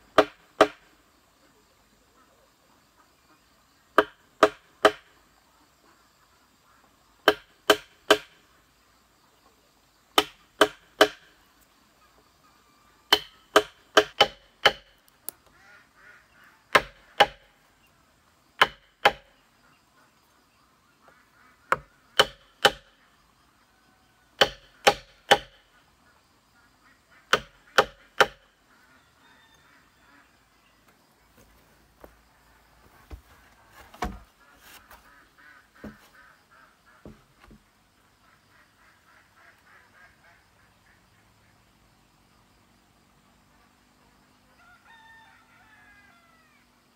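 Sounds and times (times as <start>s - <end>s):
blade hammered into bamboo: 0.1s - 0.8s, 4.0s - 5.1s, 7.2s - 8.4s, 10.2s - 11.3s, 13.1s - 15.0s, 16.7s - 17.4s, 18.6s - 19.3s, 21.7s - 22.9s, 24.4s - 25.6s, 27.3s - 28.5s.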